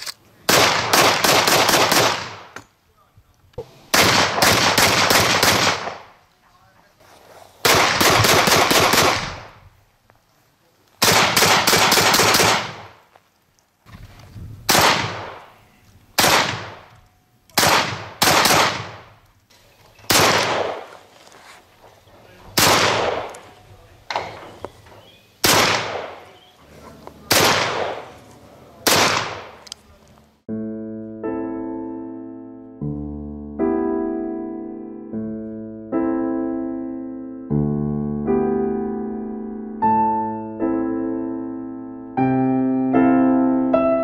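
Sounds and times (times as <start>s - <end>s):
shotgun shots with echo: 0.5s - 2.6s, 3.9s - 6.1s, 7.6s - 9.6s, 11.0s - 13.0s, 14.7s - 15.5s, 16.2s - 16.9s, 17.6s - 19.1s, 20.1s - 21.0s, 22.5s - 23.5s, 25.4s - 26.4s, 27.3s - 28.2s, 28.8s - 29.6s
piano music: 30.5s - 44.0s.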